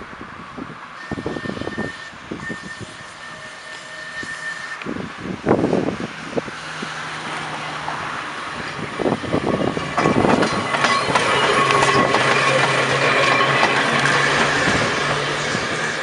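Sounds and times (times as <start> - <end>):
tram rolling on rails: 0.0 - 16.0
wheels clacking over rail joints: 7.8 - 16.0
thin high wheel tones: 8.6 - 16.0.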